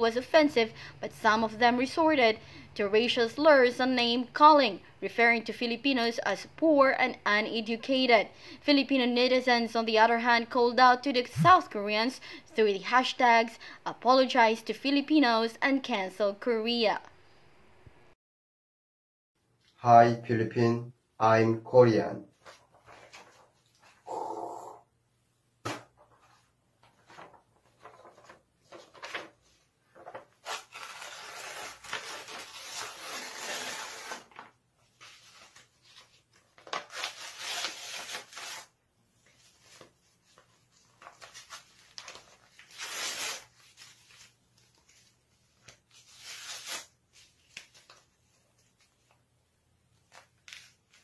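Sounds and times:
paper rustling and crumpling: 22.4s - 23.9s, 26.1s - 49.2s, 50.0s - 51.0s.

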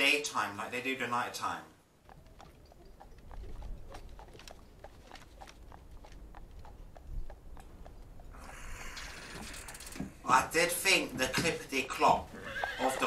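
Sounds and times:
horse hooves on pavement: 1.9s - 13.0s.

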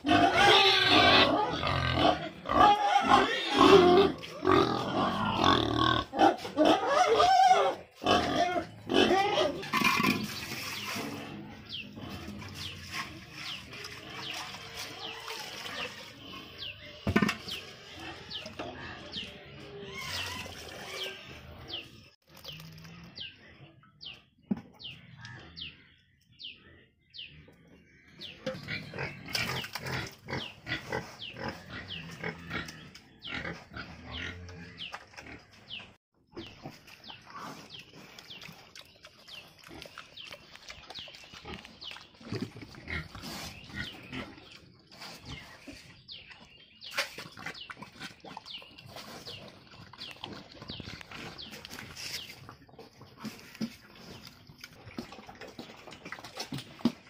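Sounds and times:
pigs slurping slop: 9.6s - 16.7s, 36.5s - 45.9s, 46.8s - 57.0s.

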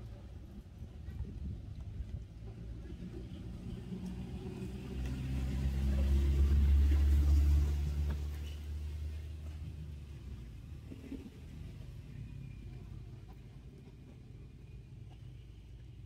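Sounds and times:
low engine rumble: 0.0s - 16.0s.

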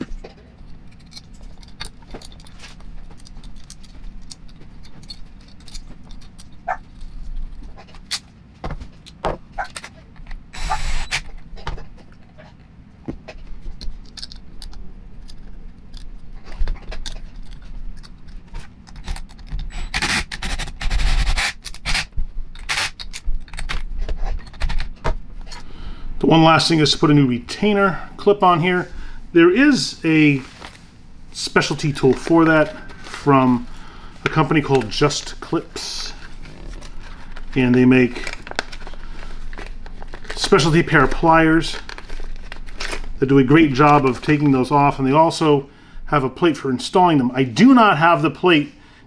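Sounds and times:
metal tools clinking and scraping: 0.1s - 7.9s
cordless drill running: 10.6s - 11.2s.

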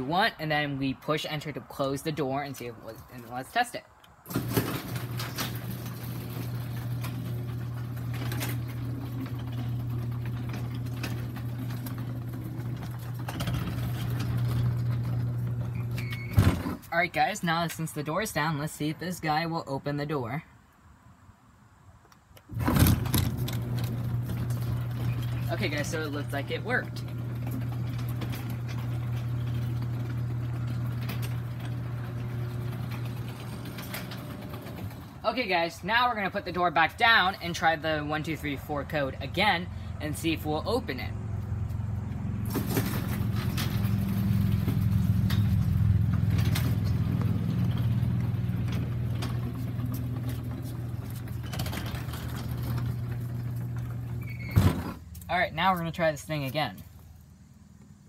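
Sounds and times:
garage door opener motor hum: 4.2s - 16.9s, 22.5s - 35.2s, 42.0s - 55.0s.

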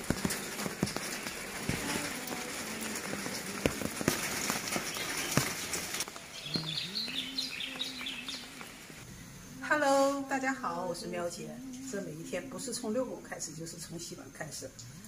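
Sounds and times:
rain pattering on leaves: 0.0s - 9.0s.

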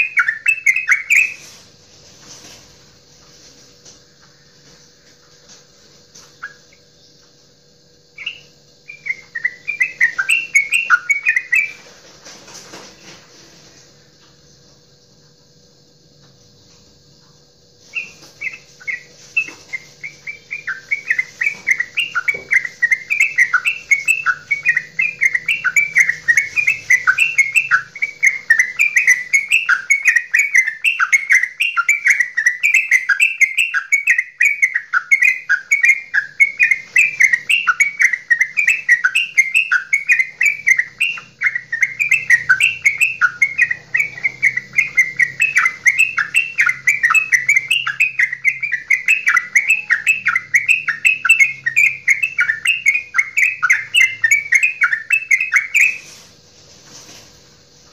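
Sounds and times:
bird singing fast bubbling chatter: 18.0s - 56.0s.

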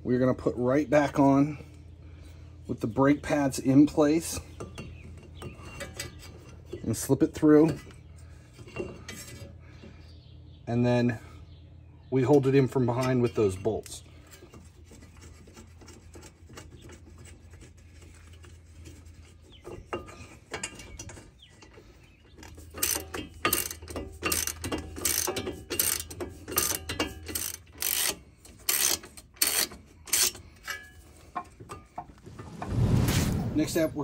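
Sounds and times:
ratchet wrench clicking: 22.8s - 30.4s.

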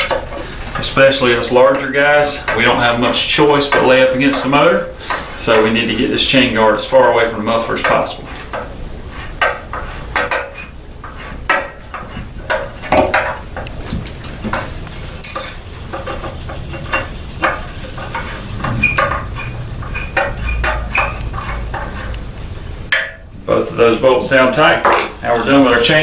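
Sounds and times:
sharp metallic knocks: 9.4s - 10.7s, 11.5s - 13.4s, 14.5s - 22.2s, 22.9s - 23.3s.

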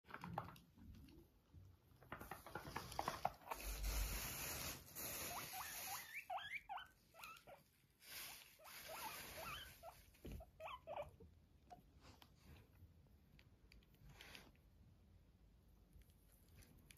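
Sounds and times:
soft rustling and pattering: 0.1s - 4.9s
guinea pig squeaking: 2.8s - 12.0s.

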